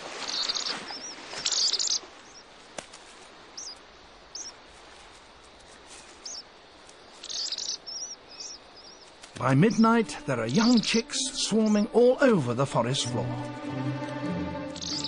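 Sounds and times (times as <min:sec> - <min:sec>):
buzzy bird trill: 0:07.2 - 0:12.3, 0:14.6 - 0:15.0
short high bird chirps: 0:14.7 - 0:15.0.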